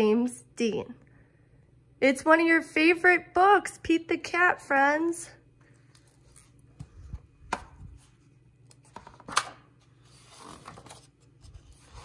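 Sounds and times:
paper rustle: 0:10.0 - 0:12.0.

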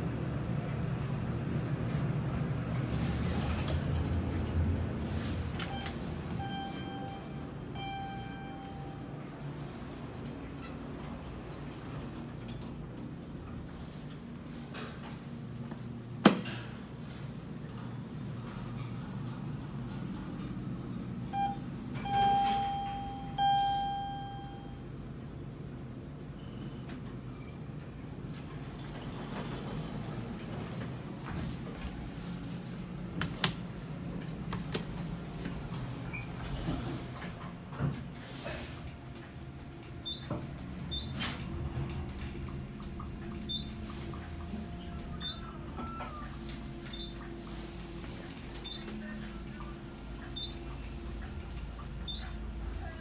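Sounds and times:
elevator ride hum: 0:00.0 - 0:53.0
elevator chime: 0:05.6 - 0:09.4, 0:21.3 - 0:24.9
short high beeps: 0:21.4 - 0:24.8.

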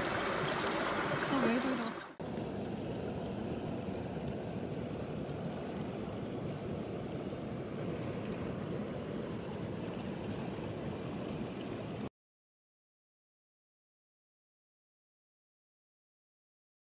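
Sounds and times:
stream flowing over rocks: 0:00.0 - 0:12.1.

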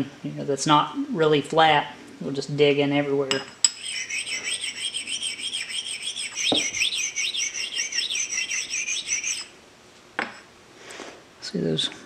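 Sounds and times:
stone scraping on steel: 0:03.7 - 0:09.5.

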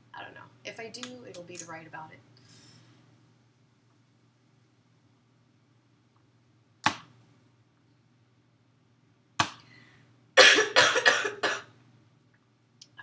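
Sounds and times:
woman coughing: 0:10.4 - 0:11.7.

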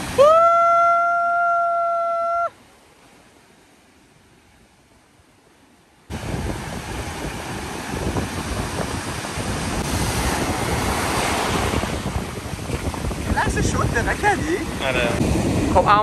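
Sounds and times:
breaking surf: 0:00.0 - 0:04.8, 0:06.1 - 0:16.0
wind buffeting microphone: 0:06.1 - 0:16.0.

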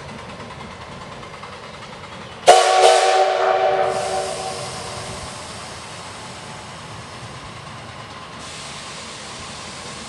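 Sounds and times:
steam locomotive hissing and rumbling: 0:00.0 - 0:10.0
steam whistle: 0:02.5 - 0:05.8.

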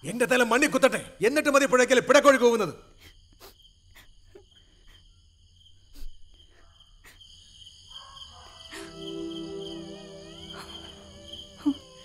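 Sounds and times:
crickets chirping: 0:00.0 - 0:12.0
low musical drone: 0:08.8 - 0:12.0.

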